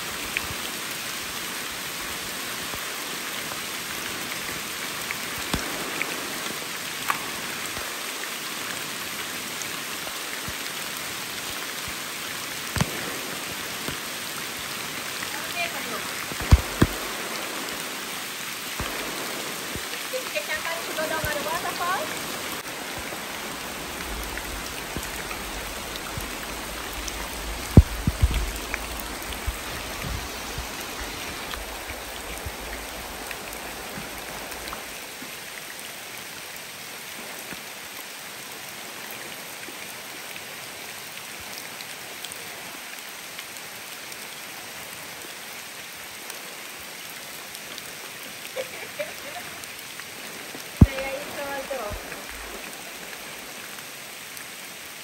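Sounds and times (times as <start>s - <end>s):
water rushing over rock: 0.0s - 37.7s, 48.4s - 54.1s.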